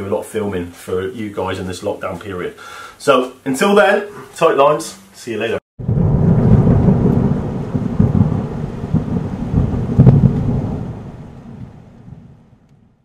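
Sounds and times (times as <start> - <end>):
steady rain: 5.2 - 12.8
thunder rumbling: 5.8 - 13.0.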